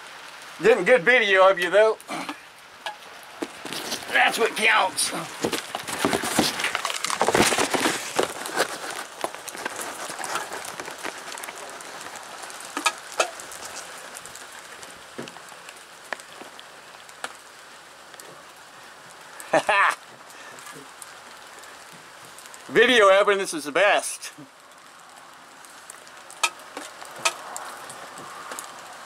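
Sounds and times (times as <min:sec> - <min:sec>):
rain pattering: 0:00.0 - 0:29.0
rustling and knocking: 0:05.3 - 0:12.1.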